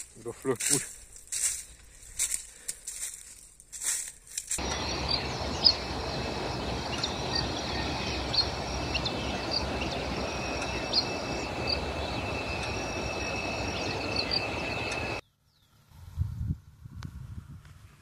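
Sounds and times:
steady high buzz: 0:04.6 - 0:15.2
wind noise on microphone: 0:15.9 - 0:18.0.

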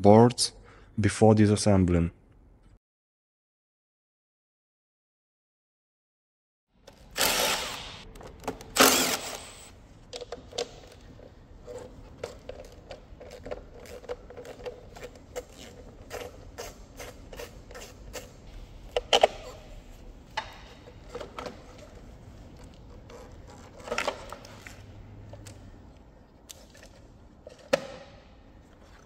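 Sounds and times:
cordless drill running: 0:07.2 - 0:08.0, 0:08.8 - 0:09.7.

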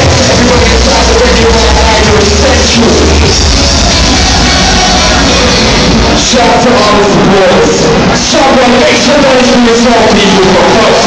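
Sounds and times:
person singing: 0:00.0 - 0:06.7
loud club music: 0:00.0 - 0:11.0.

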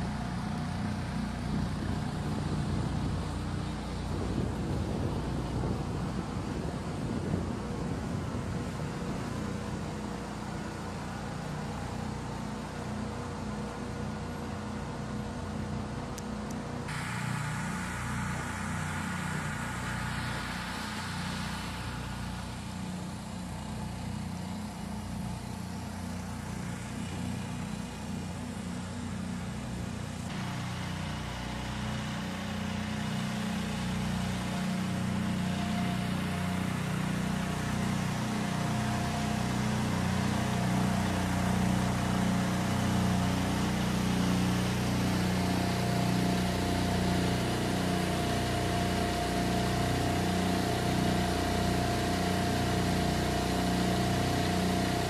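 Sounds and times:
engine drone: 0:00.0 - 0:55.0
hiss: 0:16.9 - 0:23.4.

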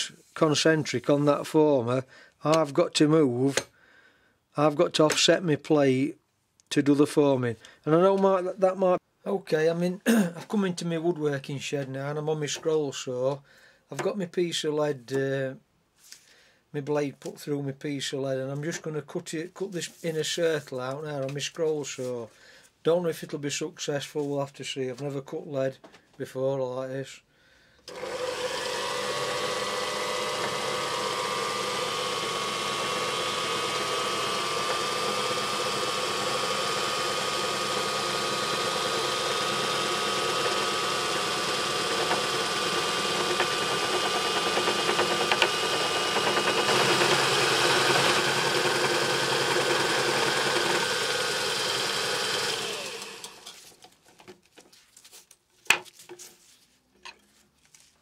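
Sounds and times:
scroll saw cutting metal sheet: 0:27.9 - 0:53.6.

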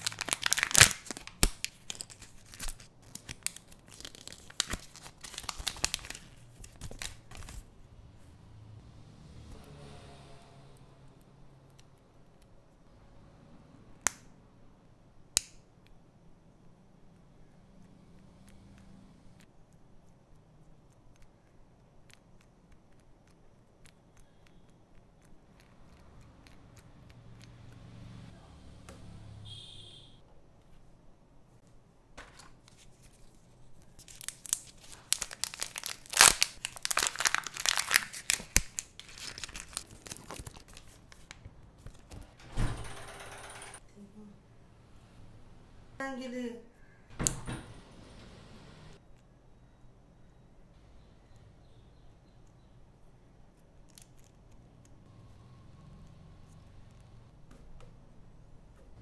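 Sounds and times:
foil wrapper crinkling: 0:00.0 - 0:07.7, 0:32.3 - 0:42.1.

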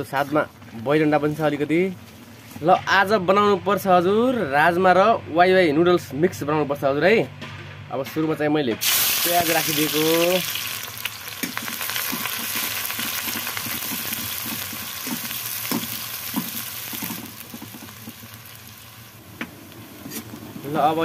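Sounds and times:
onions sizzling in hot oil: 0:08.8 - 0:21.0
metal spatula scraping pan: 0:20.0 - 0:20.4.

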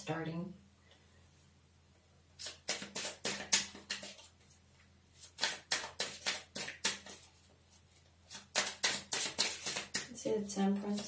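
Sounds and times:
cards snapping and slapping: 0:02.4 - 0:04.3, 0:05.2 - 0:07.3, 0:08.3 - 0:10.1.

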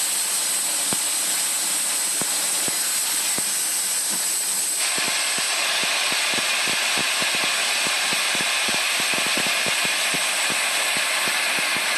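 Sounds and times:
lathe hissing: 0:00.0 - 0:11.9.

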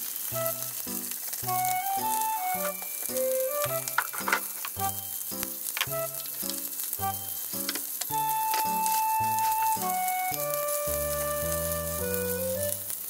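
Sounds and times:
meat sizzling in frying pan: 0:00.0 - 0:13.0
melodic background music: 0:00.0 - 0:13.0.

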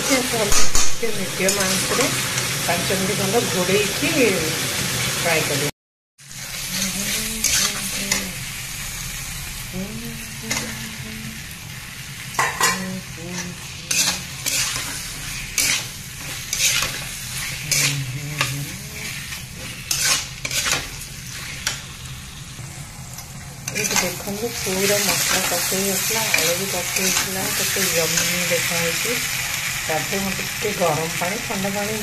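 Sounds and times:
curry sizzling in pan: 0:00.0 - 0:32.0
metal spatula scraping pan: 0:06.6 - 0:08.2, 0:13.4 - 0:21.8.

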